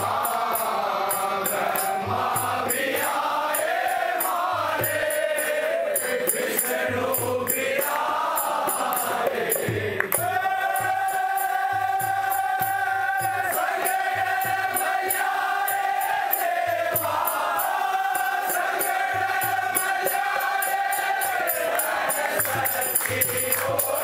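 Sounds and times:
man singing into microphone: 0.0s - 15.8s
high ticking beat: 0.0s - 24.0s.

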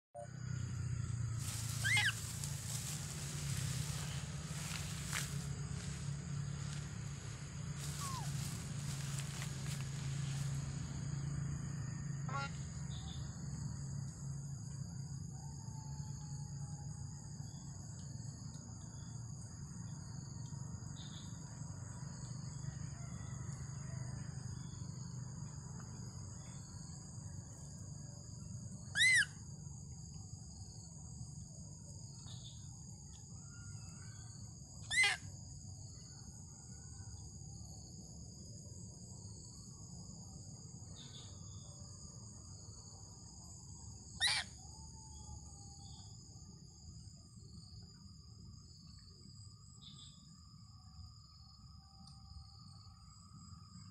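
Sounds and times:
low background rumble: 0.2s - 34.8s
high-pitched insect chorus: 0.2s - 53.9s
loud shrill call: 1.8s - 2.2s, 34.9s - 35.2s, 44.2s - 44.5s.

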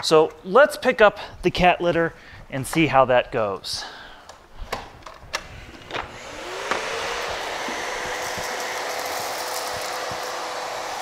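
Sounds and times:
vacuum cleaner running: 5.7s - 11.0s.

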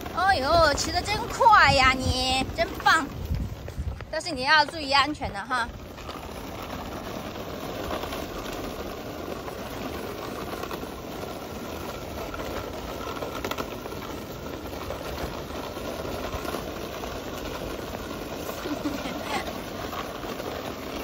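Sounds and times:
toy wheels rolling on pavement: 0.0s - 21.0s.

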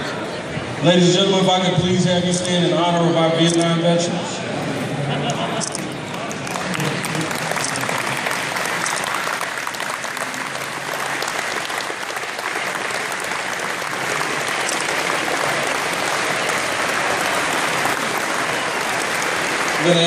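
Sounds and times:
crowd applauding: 5.6s - 20.0s.

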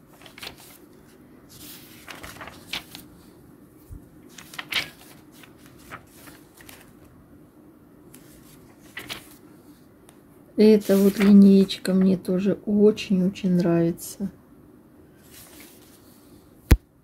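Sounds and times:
paper pages rustling: 0.0s - 7.1s, 8.1s - 9.5s, 10.8s - 12.2s, 15.2s - 16.2s.

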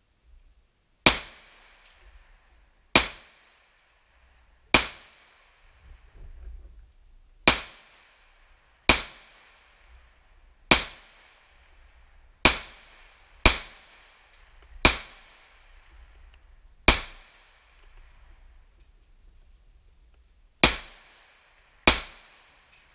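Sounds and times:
pistol shots with echo: 1.0s - 1.8s, 2.9s - 3.8s, 4.7s - 5.8s, 7.4s - 10.0s, 10.7s - 15.9s, 16.8s - 18.0s, 20.6s - 22.7s.

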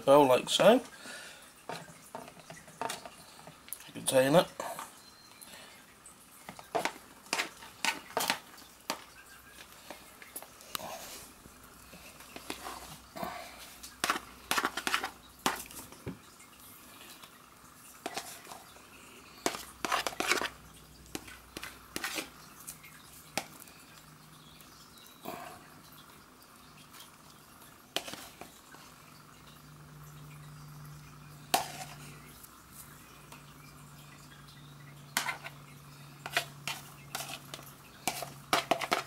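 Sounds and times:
spatula knocking and scraping bowl: 6.5s - 9.1s, 14.0s - 15.8s, 19.4s - 22.3s, 31.5s - 32.0s, 35.2s - 35.5s, 36.2s - 39.0s.

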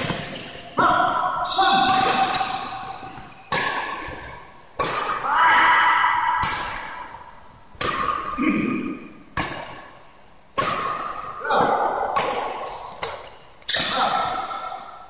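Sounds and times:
rackets striking shuttlecock: 1.7s - 5.2s, 6.4s - 8.4s, 9.3s - 10.0s, 10.6s - 14.8s.

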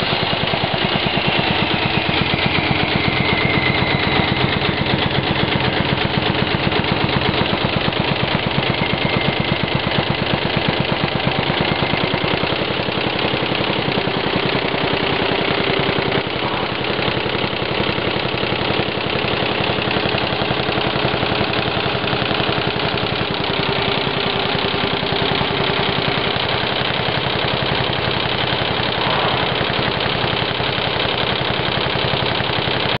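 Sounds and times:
embroidery machine clatter: 0.0s - 33.0s.

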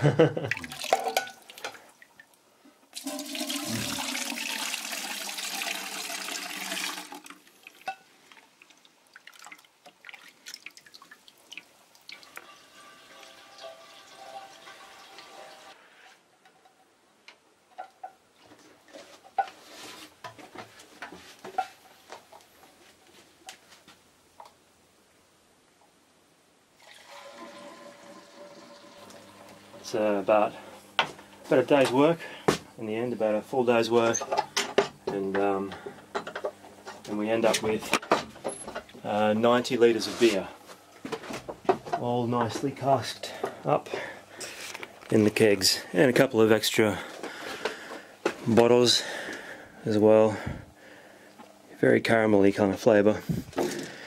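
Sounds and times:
beer pouring: 0.5s - 2.2s, 2.9s - 15.8s, 26.8s - 31.1s
liquid trickling and dribbling: 0.5s - 15.7s.

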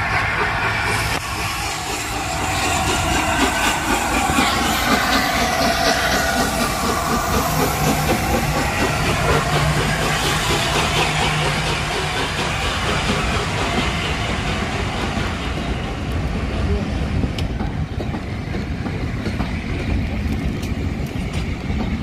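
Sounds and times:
steam hiss: 0.0s - 17.1s
steam locomotive exhaust beat: 0.0s - 22.0s.

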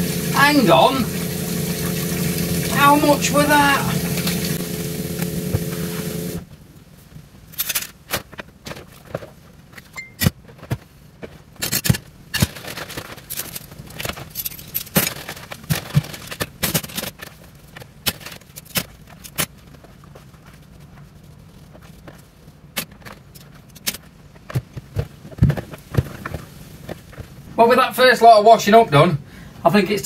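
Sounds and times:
water swishing: 0.0s - 6.4s.

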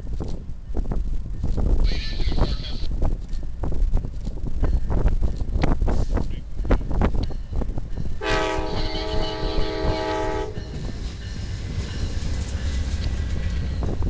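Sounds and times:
wind on microphone: 0.0s - 14.0s
train cars rumbling past: 2.9s - 14.0s
locomotive air horn: 8.2s - 10.8s.

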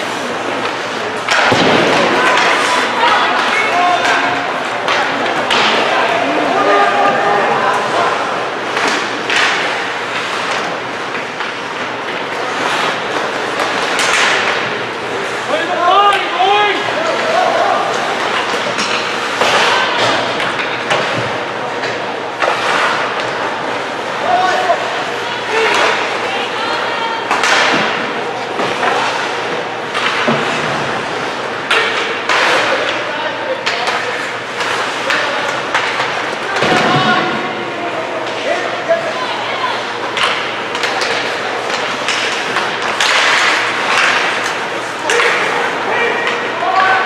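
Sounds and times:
hockey sticks and puck clacking: 0.0s - 39.2s, 39.8s - 47.0s
skates scraping on ice: 7.8s - 15.9s
stick hitting puck: 40.1s - 45.6s.

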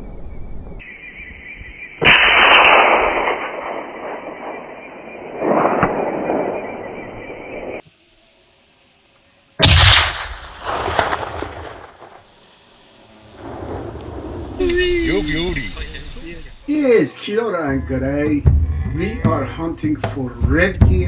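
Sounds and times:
loud rolling booms: 2.0s - 6.9s, 9.6s - 12.5s, 13.3s - 16.7s.

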